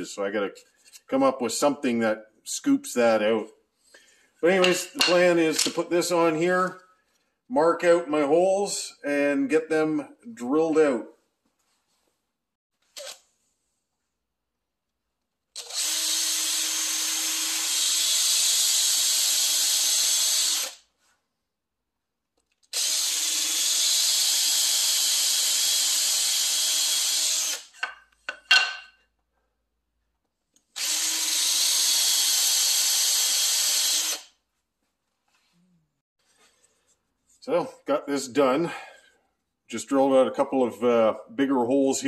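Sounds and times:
power drill boring wood: 15.6 - 20.8, 22.7 - 27.9, 30.8 - 34.3.

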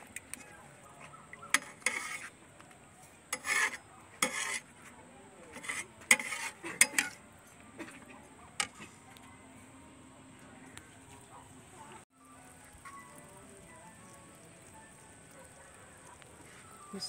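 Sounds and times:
metal spoon scraping metal pot: 1.4 - 2.4, 3.0 - 4.9, 5.5 - 7.2, 7.8 - 9.0.

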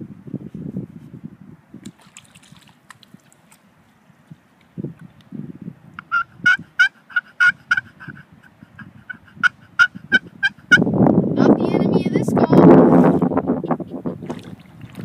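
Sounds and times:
turkey call clucks and yelps: 6.0 - 10.9.

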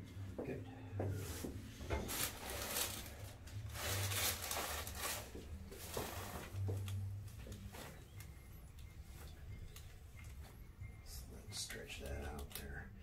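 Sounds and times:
clothing rustling on padded table: 1.0 - 8.1.

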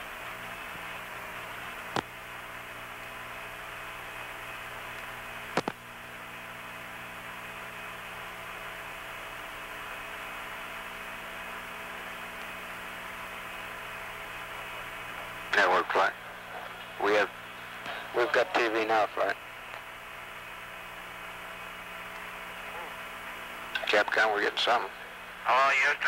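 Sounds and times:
radio channel hiss and hum: 0.1 - 26.0
sharp radio clicks: 1.9 - 2.1, 5.5 - 5.8, 23.7 - 24.5.

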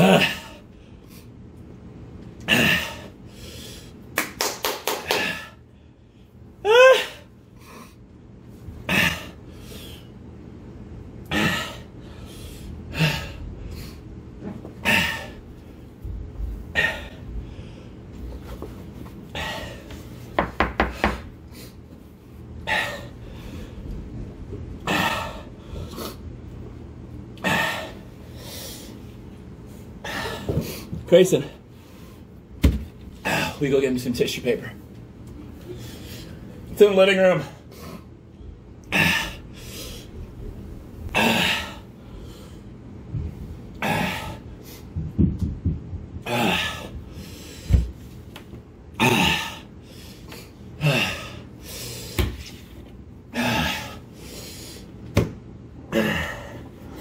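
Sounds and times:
man gasping and panting: 0.0 - 1.2, 2.4 - 4.0, 11.2 - 14.0, 14.8 - 15.4, 16.7 - 18.0, 19.3 - 20.0, 24.8 - 26.2, 30.0 - 31.1, 41.1 - 42.4, 46.2 - 47.9, 49.0 - 52.4, 53.3 - 54.9, 55.8 - 56.8.

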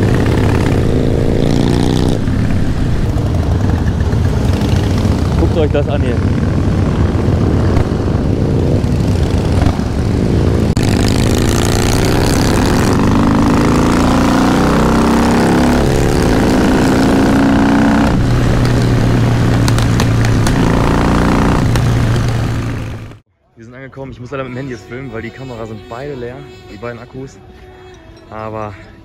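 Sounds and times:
wind on microphone: 0.0 - 13.7
motorcycle engine accelerating: 0.0 - 23.2.

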